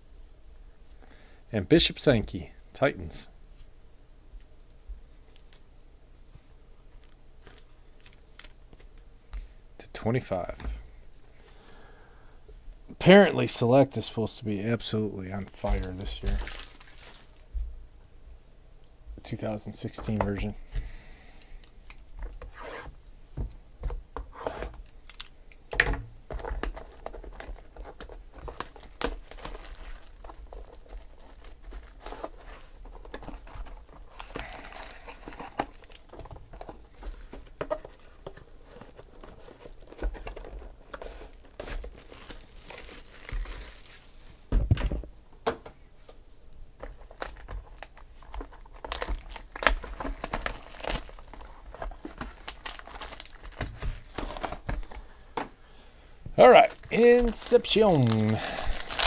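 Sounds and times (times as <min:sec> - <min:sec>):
shrink-wrap crinkling and tearing: 0:07.0 - 0:08.9, 0:15.4 - 0:17.5, 0:24.8 - 0:25.6, 0:26.3 - 0:44.3, 0:46.9 - 0:55.0, 0:56.4 - 0:59.0.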